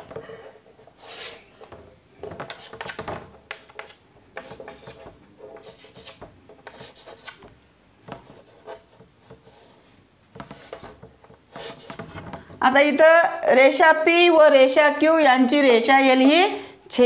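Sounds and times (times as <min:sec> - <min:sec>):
chalk scraping on blackboard: 0:02.4 - 0:12.3.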